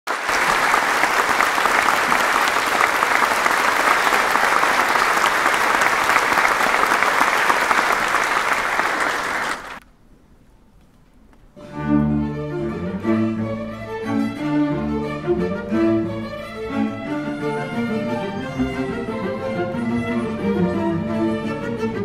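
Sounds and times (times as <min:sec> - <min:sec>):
audience applauding: 0:00.1 - 0:09.8.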